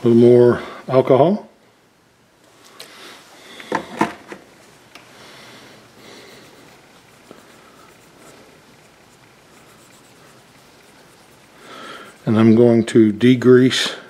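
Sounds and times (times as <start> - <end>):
plastic bottle set down on bench: 3.7 - 4.4
cotton swab scratchy rubbing: 6.0 - 12.8.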